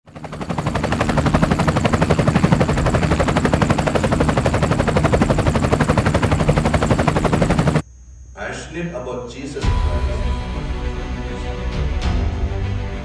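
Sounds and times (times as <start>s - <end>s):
steady low hum: 0.2s - 9.8s.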